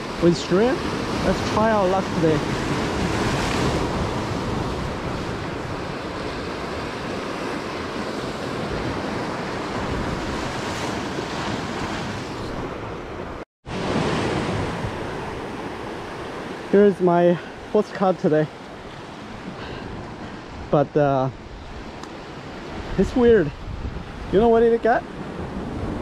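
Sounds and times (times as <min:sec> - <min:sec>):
wind buffeting microphone: 0:00.0 - 0:16.6, 0:18.6 - 0:26.0
surf washing over rocks: 0:00.0 - 0:26.0.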